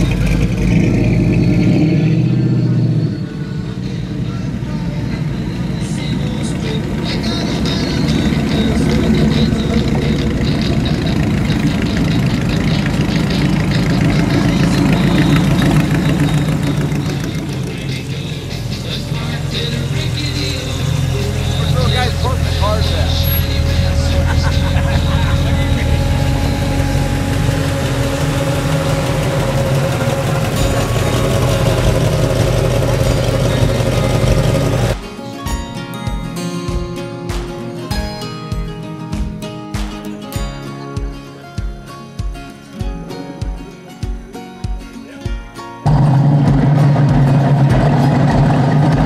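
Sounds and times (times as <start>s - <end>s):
vehicle engine rumbling: 0.0s - 35.0s, 45.8s - 49.0s.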